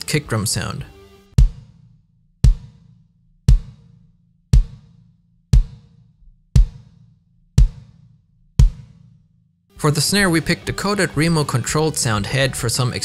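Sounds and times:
muffled kick drum hits: 0:01.4 - 0:09.1.

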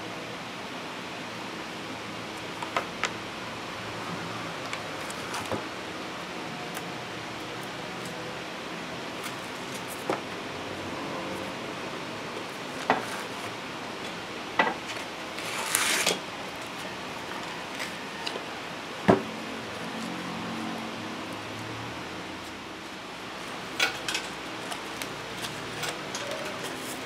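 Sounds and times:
sandpaper rustling: 0:15.4 - 0:16.2.

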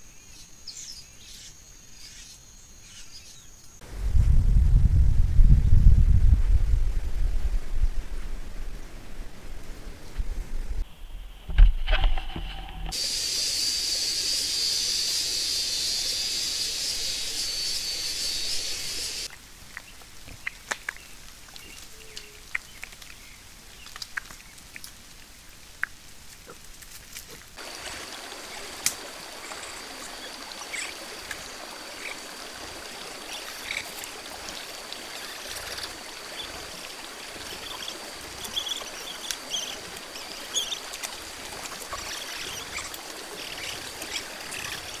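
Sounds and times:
insects whining and chirping: 0:10.8 - 0:19.3, 0:27.6 - 0:45.0
loud high hiss: 0:12.9 - 0:19.3.

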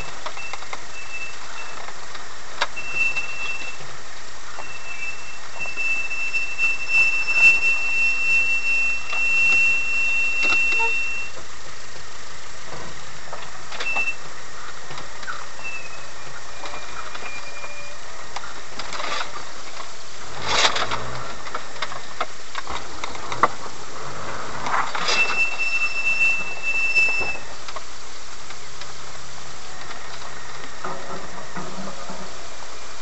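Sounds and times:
thin high squeal: 0:00.0 - 0:01.9, 0:02.7 - 0:03.9, 0:04.5 - 0:11.4, 0:15.3 - 0:18.3, 0:24.9 - 0:27.6
vehicle engine drone: 0:00.0 - 0:33.0.

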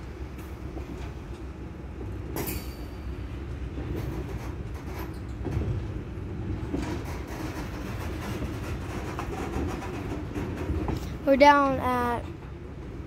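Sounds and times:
train wheels rumbling on rail: 0:00.0 - 0:13.0
clanks over rail joints: 0:03.8 - 0:12.6.

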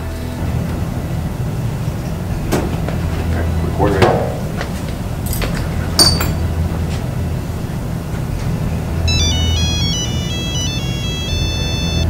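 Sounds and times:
steady low drone: 0:00.0 - 0:12.0
phone ringtone beeping melody: 0:09.1 - 0:12.0.

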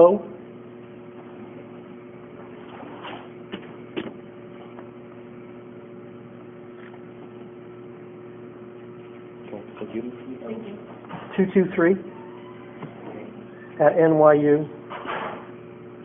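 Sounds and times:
steady room hum: 0:00.0 - 0:16.0.

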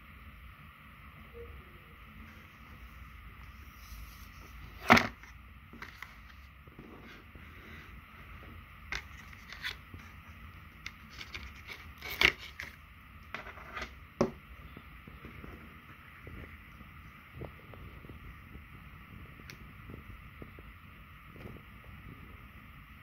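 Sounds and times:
handling clicks knocks and scrapes: 0:10.8 - 0:14.0.

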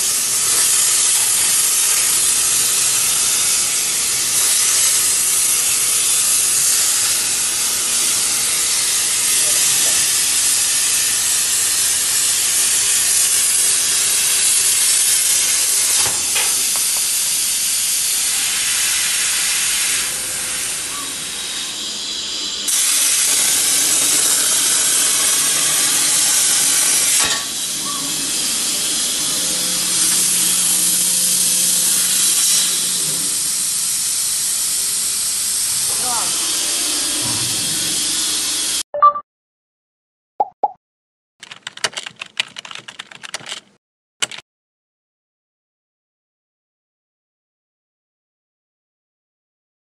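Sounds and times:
plasma torch cutting hiss: 0:00.0 - 0:38.8.

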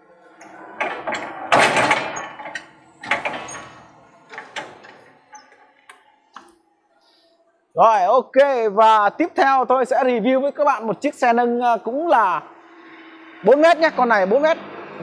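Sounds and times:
forklift clunks and rattles: 0:00.6 - 0:05.4.

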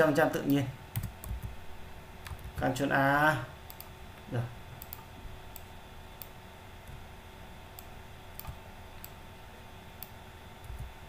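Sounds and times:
low electrical hum: 0:00.0 - 0:11.0
mouse and keyboard clicks: 0:07.8 - 0:09.2.

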